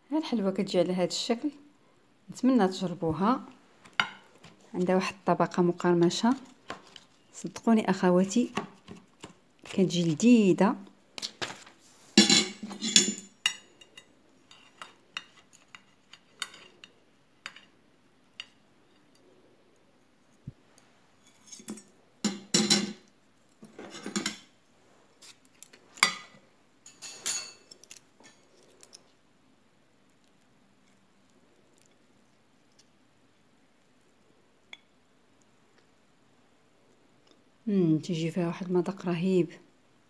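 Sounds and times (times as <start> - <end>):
metal cutlery clinking on plates: 12.2 - 16.9, 21.3 - 23.0, 23.8 - 24.5, 26.0 - 28.4.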